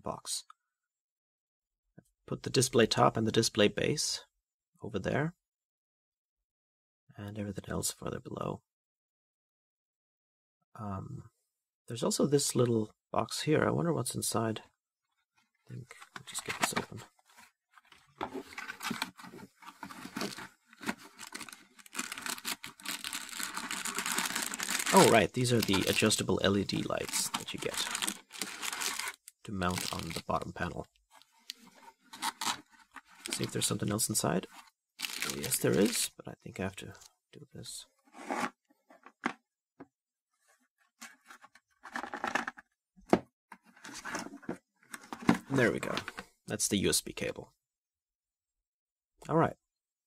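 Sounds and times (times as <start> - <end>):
cardboard scraping and tearing: 16.3 - 30.2, 31.9 - 33.5
plastic wrapping crinkling: 18.4 - 30.3, 32.2 - 33.5, 35.0 - 36.0.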